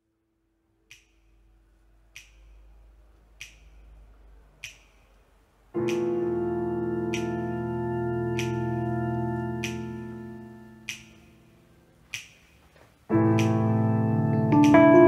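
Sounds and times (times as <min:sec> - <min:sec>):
finger snaps: 0:00.9 - 0:01.4, 0:02.2 - 0:02.7, 0:03.4 - 0:03.9, 0:04.6 - 0:06.2, 0:07.1 - 0:07.4, 0:08.4 - 0:08.7, 0:09.6 - 0:10.0, 0:10.8 - 0:11.3, 0:12.1 - 0:12.6, 0:13.4 - 0:13.7
piano chord: 0:05.8 - 0:11.9, 0:13.1 - 0:15.0.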